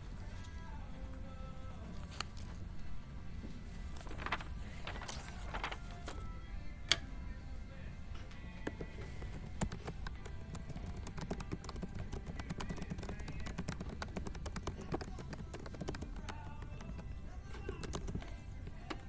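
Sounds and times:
laptop keyboard typing: 0:08.7 - 0:19.0.

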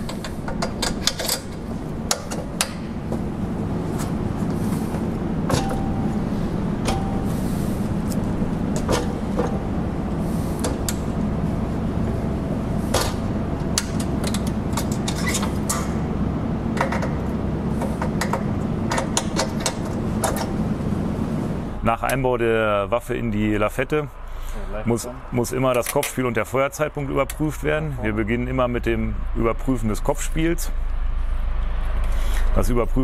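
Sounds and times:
metal clicks and knocks: 0:00.0 - 0:03.3, 0:12.9 - 0:16.0, 0:16.8 - 0:17.2, 0:17.8 - 0:20.6
steady low hum: 0:00.0 - 0:33.0.

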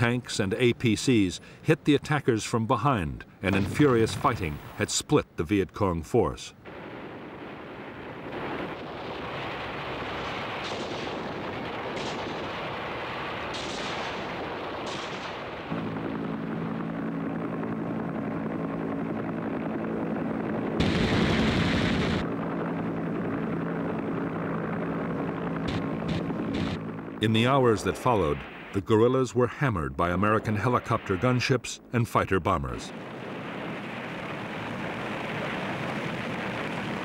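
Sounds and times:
aircraft engine drone: 0:06.6 - 0:37.0
dense rumble: 0:06.7 - 0:28.8
rifle and machine-gun fire: 0:09.3 - 0:15.7, 0:25.6 - 0:26.8
loud rushing blast: 0:20.8 - 0:22.3.

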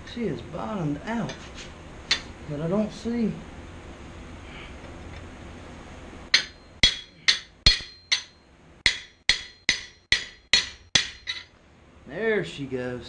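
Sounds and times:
hammer striking chisel on steel: 0:06.3 - 0:11.5.

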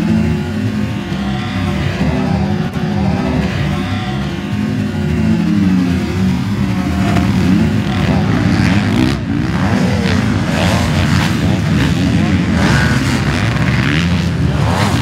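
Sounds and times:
motocross bikes revving: 0:00.0 - 0:15.0.

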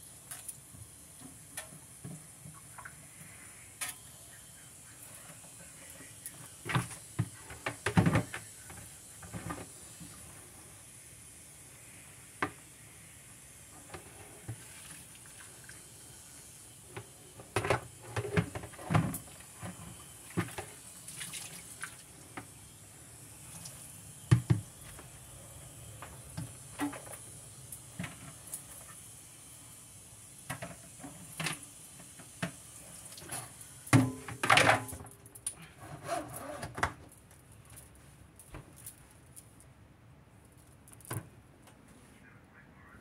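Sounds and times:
water running and splashing: 0:14.4 - 0:16.5, 0:18.6 - 0:22.3.

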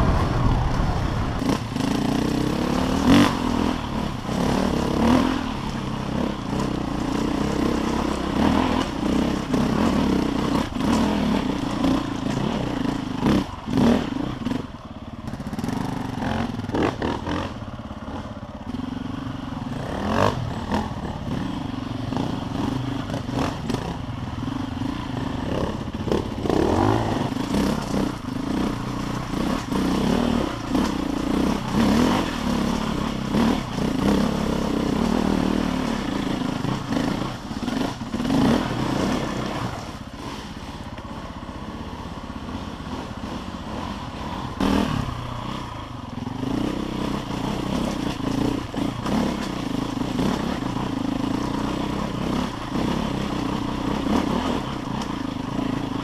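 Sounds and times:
motorcycle engine revving: 0:00.0 - 0:56.0
stones clattering against motorcycle: 0:26.5 - 0:34.2.

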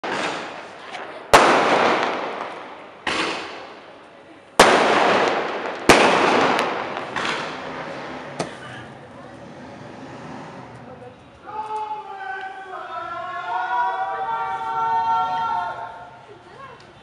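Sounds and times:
small firework pops: 0:00.0 - 0:03.8, 0:04.6 - 0:07.7
firework bangs with echo: 0:00.0 - 0:04.0, 0:04.6 - 0:08.6.

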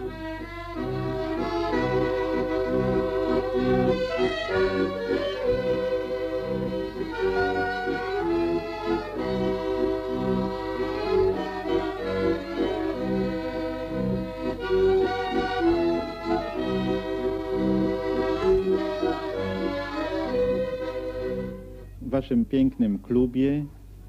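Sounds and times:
accordion folk tune: 0:00.0 - 0:22.2.

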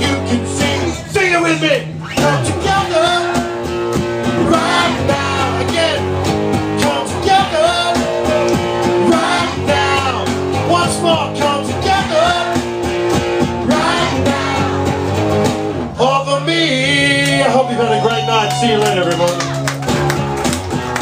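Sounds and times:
man singing into microphone: 0:00.0 - 0:01.2, 0:02.2 - 0:03.5, 0:04.4 - 0:06.0, 0:06.8 - 0:12.6, 0:16.0 - 0:17.8
guitar playing: 0:00.0 - 0:21.0.

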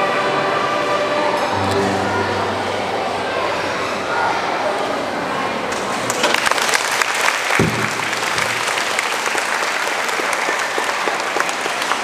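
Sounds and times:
audience applauding: 0:06.0 - 0:12.0
low thump: 0:07.6 - 0:08.6.

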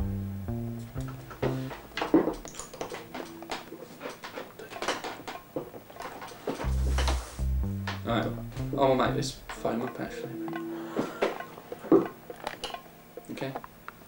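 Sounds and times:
background music with bass line: 0:00.0 - 0:02.5, 0:06.6 - 0:10.3
sharp knocks and clinks: 0:01.0 - 0:07.2, 0:09.4 - 0:13.7.

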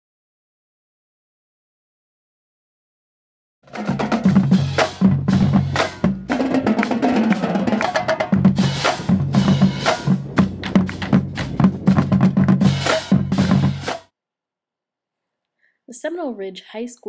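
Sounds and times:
bass drums: 0:03.7 - 0:14.1
snare drums: 0:03.7 - 0:14.1
tenor drums: 0:03.7 - 0:14.1.

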